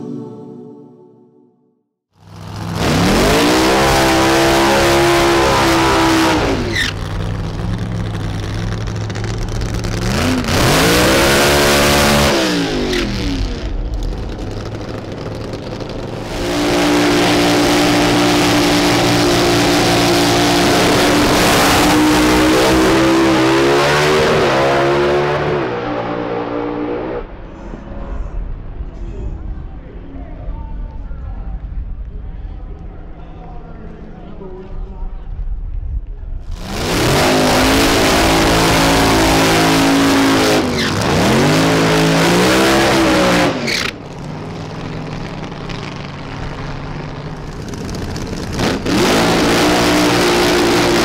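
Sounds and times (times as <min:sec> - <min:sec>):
drag racing engines revving: 0:02.2 - 0:28.9, 0:36.5 - 0:51.0.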